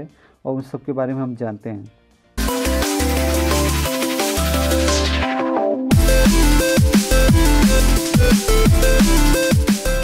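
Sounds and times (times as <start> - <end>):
electronic dance music: 2.4 - 10.0.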